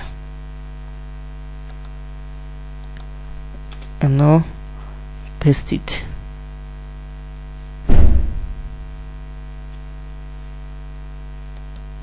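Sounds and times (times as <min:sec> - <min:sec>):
electrical mains hum: 0:00.0 - 0:12.0
loud low thump: 0:07.9 - 0:09.0.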